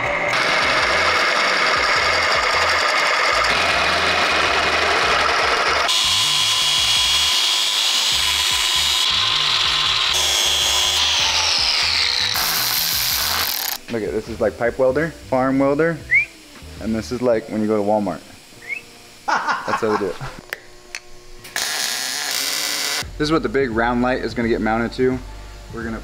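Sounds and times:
power drill boring through steel: 0.0 - 13.8, 21.6 - 23.0.

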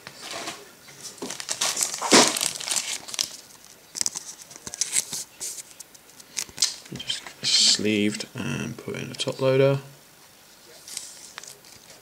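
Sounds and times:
plastic card sleeve crinkling: 0.2 - 7.3, 10.8 - 12.0.

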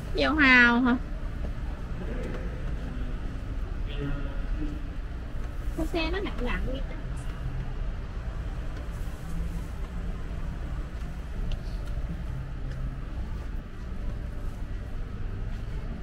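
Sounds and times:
shopping cart wheels rumbling: 5.1 - 16.0.

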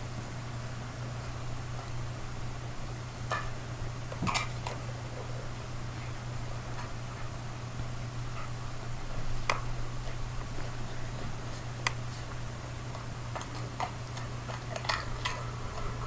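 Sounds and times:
low hum: 0.0 - 16.0
dog crunching potato chips: 10.0 - 16.0.

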